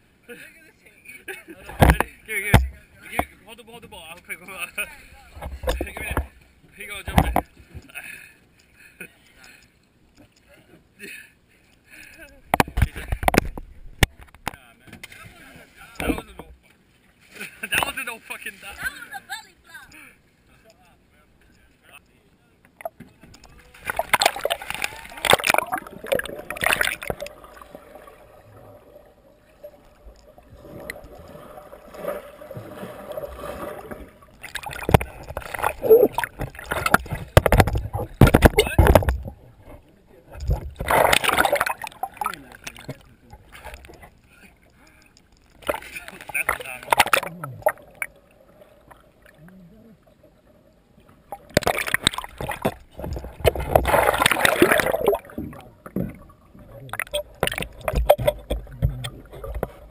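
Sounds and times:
water splashing and sloshing: 1.5s - 10.6s, 11.7s - 20.8s, 22.7s - 59.9s
underwater bubbling: 22.7s - 59.9s
person splashing into water: 23.7s - 28.2s, 30.5s - 39.2s, 40.5s - 42.9s, 51.4s - 55.6s
muffled underwater sound: 52.4s - 59.9s.

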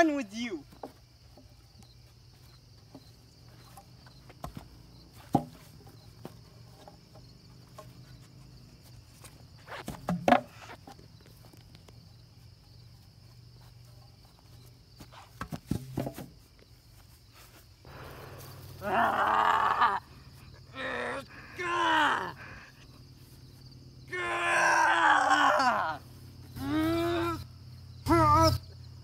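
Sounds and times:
insects chirring: 0.0s - 29.0s
wooden boards knocking and cracking: 5.2s - 5.8s, 9.8s - 10.6s.

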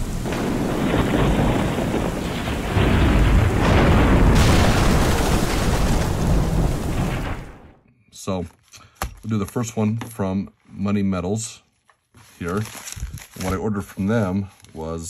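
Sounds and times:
loud explosive boom: 0.0s - 7.8s
rumbling thunder: 0.0s - 7.8s.

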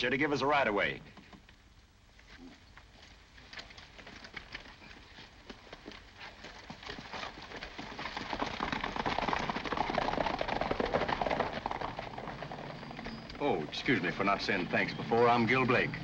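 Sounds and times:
horse hooves clattering: 1.0s - 16.0s.

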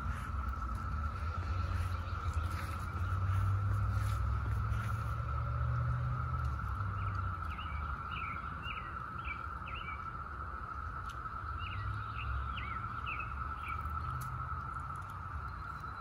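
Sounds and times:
bird chirping: 0.0s - 5.2s, 6.4s - 10.3s, 11.4s - 14.3s
cicadas droning: 0.0s - 16.0s
low rumble: 0.0s - 16.0s.

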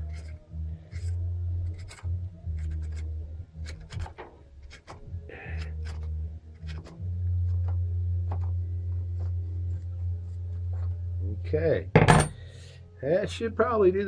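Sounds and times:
metal scrape: 0.0s - 6.0s.

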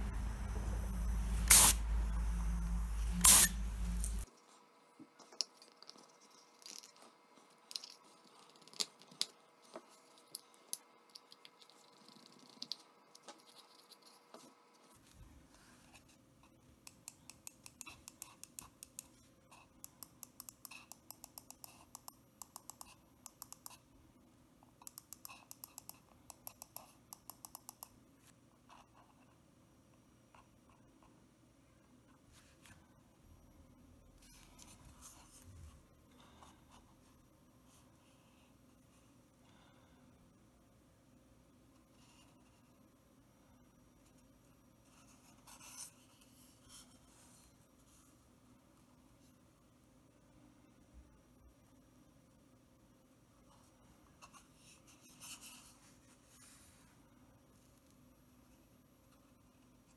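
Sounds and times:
steady hiss: 0.0s - 4.3s
computer mouse clicks: 19.8s - 23.8s, 24.8s - 28.0s.

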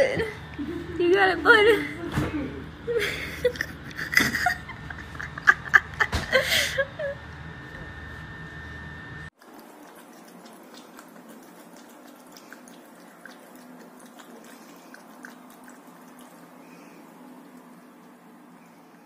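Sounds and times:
cat lapping water: 9.4s - 19.0s.

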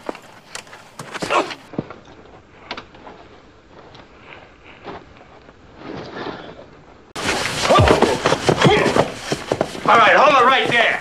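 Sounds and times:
soft knocks and scuffs: 4.8s - 11.0s.

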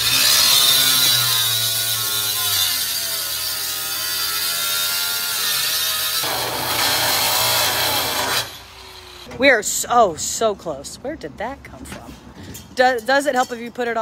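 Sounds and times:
angle grinder cutting steel: 0.0s - 9.3s.

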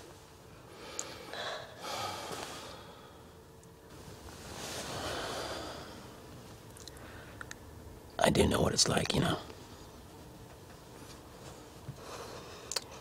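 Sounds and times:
person breathing heavily: 0.6s - 3.4s, 4.8s - 6.2s, 12.0s - 13.0s.

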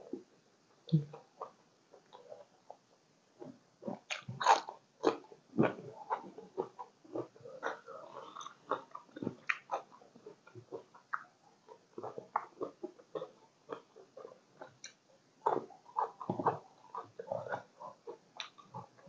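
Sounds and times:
person chewing wetly: 3.8s - 19.0s.

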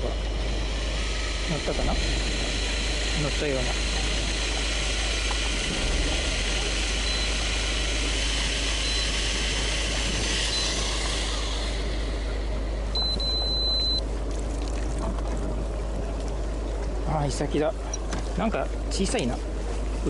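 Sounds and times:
boat engine idling: 0.0s - 20.0s
wind and sea noise: 0.0s - 20.0s
long steady high beep: 6.9s - 11.0s, 12.9s - 14.1s
short high beeps: 8.9s - 9.2s, 13.0s - 14.0s.

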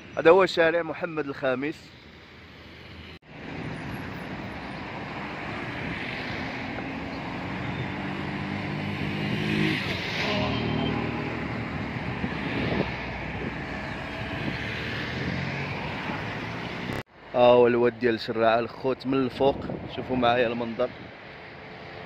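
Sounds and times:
cars and motorbikes passing: 1.8s - 17.3s, 19.6s - 22.0s
vehicle engine hum passing close: 3.3s - 17.0s.

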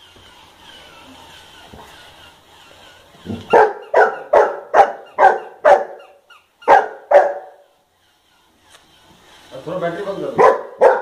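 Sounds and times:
dog barking: 3.5s - 7.6s, 10.4s - 11.0s.

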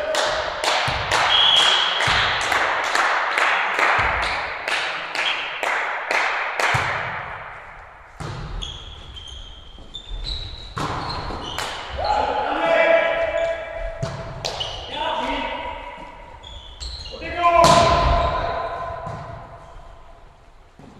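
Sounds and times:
volleyball hits: 0.2s - 9.0s, 10.6s - 12.0s, 13.3s - 16.2s, 17.6s - 19.8s
volleyball bouncing on wooden floor: 6.7s - 7.5s, 8.2s - 9.0s, 10.7s - 11.8s, 13.8s - 14.8s, 18.9s - 19.5s
sneakers squeaking on floor: 8.2s - 12.3s, 13.3s - 18.0s.

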